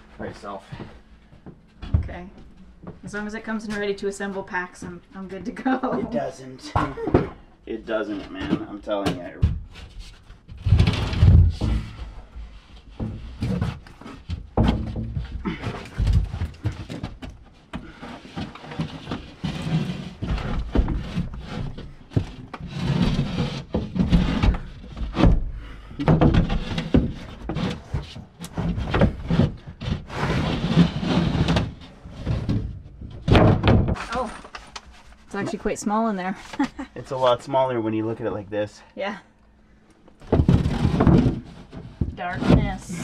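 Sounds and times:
sheet scraping on wood: 0:17.8 - 0:25.4, 0:26.0 - 0:35.5, 0:40.2 - 0:43.0.

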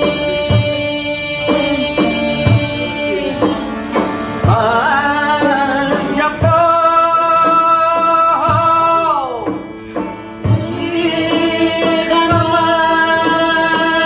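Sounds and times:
frame drum beating: 0:00.0 - 0:08.8
man singing: 0:00.0 - 0:09.6, 0:10.4 - 0:14.0
accordion: 0:00.0 - 0:14.0.

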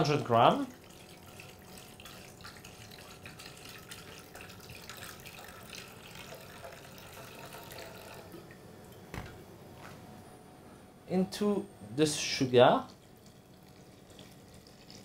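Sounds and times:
liquid pouring into metal bowl: 0:00.1 - 0:09.0, 0:12.8 - 0:15.0
liquid splashing and trickling: 0:00.4 - 0:09.0, 0:12.8 - 0:15.0.

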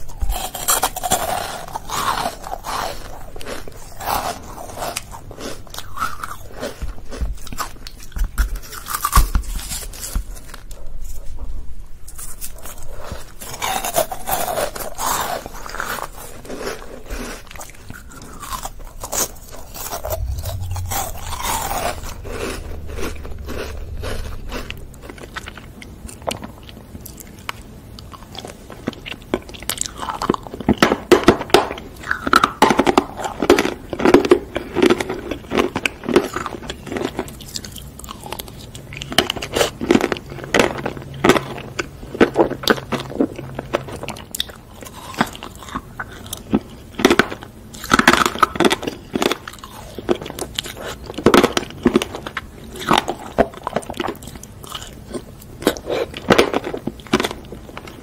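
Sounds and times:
crunchy bites and chewing: 0:00.0 - 0:10.8, 0:12.1 - 0:58.0
small crackles of coating: 0:25.7 - 0:58.0.

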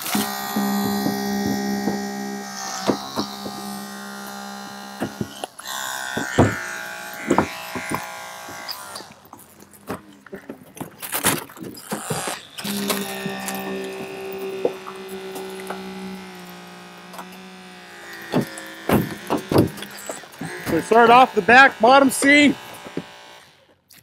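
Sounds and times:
hydraulic tool motor whining: 0:00.0 - 0:24.0
sheet metal clicks and creaks: 0:07.2 - 0:17.5.

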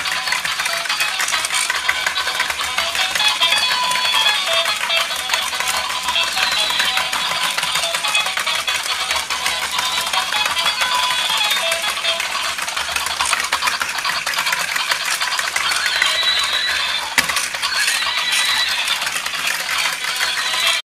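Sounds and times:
toy gear mechanisms clicking: 0:00.0 - 0:20.8
thin electronic toy tones: 0:15.5 - 0:19.0.

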